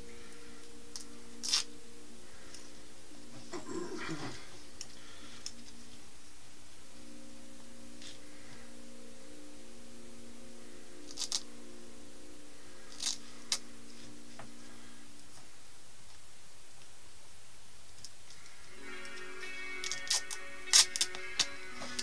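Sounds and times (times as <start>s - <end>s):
faint steady hum: 0.0s - 22.0s
tape clicks and rasps: 0.6s - 1.8s, 11.0s - 11.5s, 12.9s - 13.7s, 17.9s - 22.0s.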